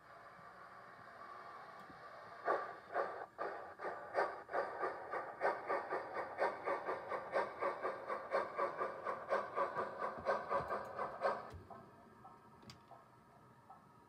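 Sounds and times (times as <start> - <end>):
model steam locomotive chuffing: 0.0 - 13.8.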